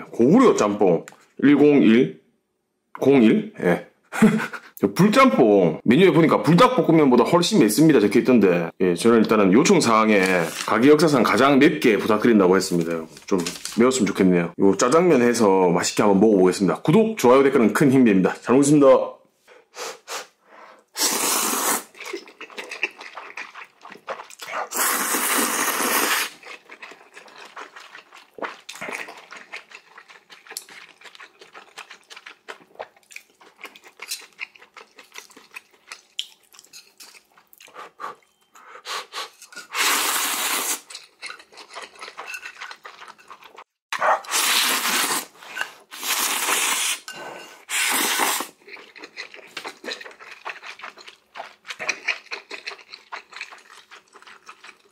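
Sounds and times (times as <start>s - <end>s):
loud noodle slurping: 21.0s - 26.9s, 37.7s - 40.9s, 44.2s - 48.6s.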